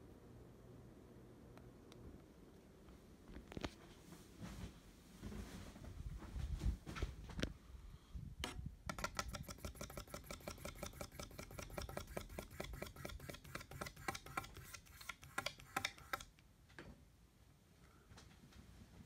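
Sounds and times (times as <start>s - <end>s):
ceiling fan clicking: 8.4s - 16.8s.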